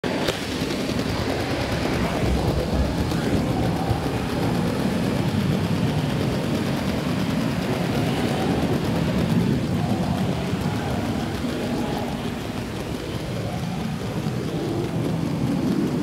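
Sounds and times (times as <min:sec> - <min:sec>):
toy train rumbling and rattling: 0:00.0 - 0:16.0.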